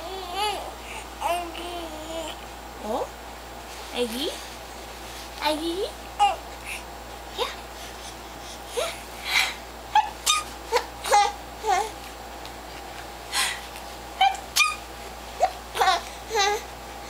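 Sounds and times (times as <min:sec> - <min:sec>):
baby squealing and giggling: 0:09.9 - 0:11.9, 0:14.2 - 0:16.6.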